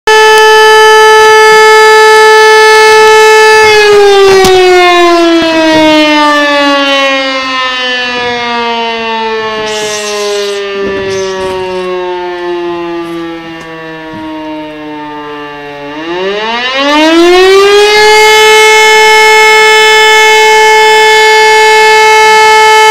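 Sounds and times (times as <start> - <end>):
siren wailing and winding down: 0.1 - 22.9.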